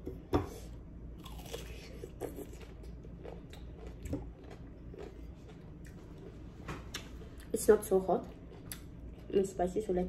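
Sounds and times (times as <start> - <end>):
person chewing cucumber: 1.2 - 7.5, 8.2 - 9.3.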